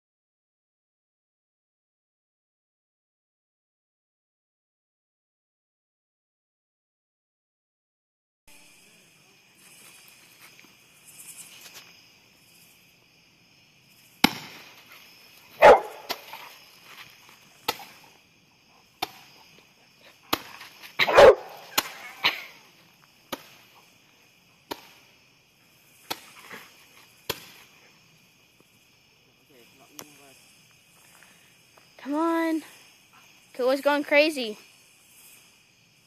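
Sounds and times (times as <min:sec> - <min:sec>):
night insects chirring: 0:08.5 - 0:36.0
fireworks popping: 0:13.9 - 0:18.1, 0:20.2 - 0:23.9.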